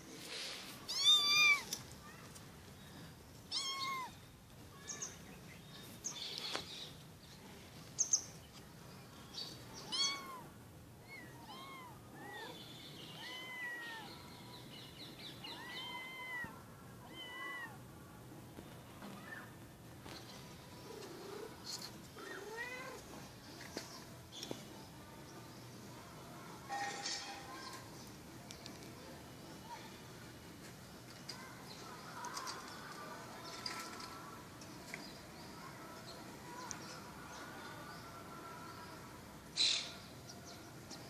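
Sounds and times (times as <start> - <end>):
cats meowing: 0.9 - 1.8, 3.5 - 4.2, 9.8 - 14.1, 15.5 - 17.8, 22.2 - 23.2.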